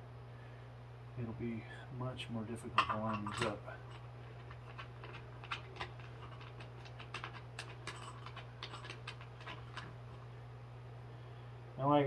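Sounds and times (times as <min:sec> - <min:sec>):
steady low hum: 0:00.0 - 0:12.0
metal hardware clicks and scrapes: 0:02.6 - 0:10.2.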